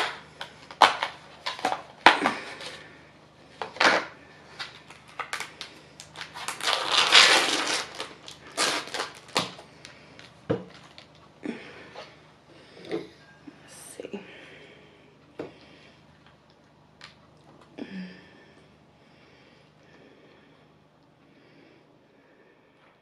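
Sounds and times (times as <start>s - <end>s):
plastic containers crackling and snapping: 0.0s - 2.8s, 3.6s - 11.3s.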